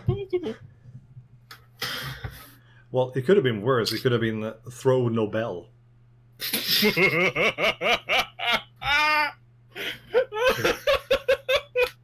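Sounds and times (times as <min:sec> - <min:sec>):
faint low hum: 0:00.0 - 0:12.0
group laughing: 0:06.4 - 0:12.0.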